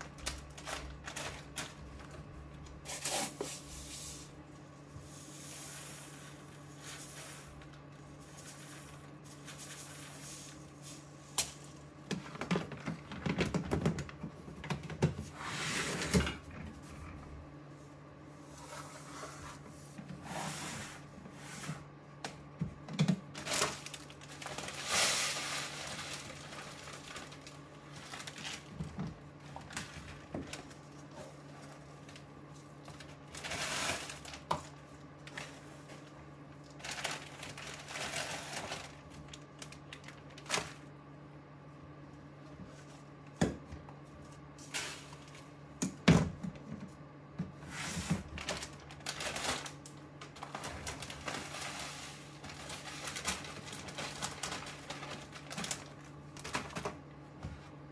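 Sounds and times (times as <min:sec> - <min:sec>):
plastic bag rustling: 0:00.0 - 0:17.4, 0:22.8 - 0:40.9, 0:47.6 - 0:57.0
low steady hum: 0:00.0 - 0:57.9.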